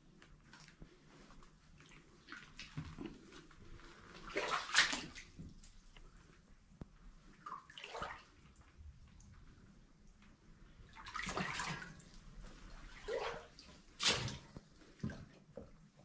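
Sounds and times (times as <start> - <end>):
footsteps splashing through water: 4.2 - 5.5, 12.8 - 15.2.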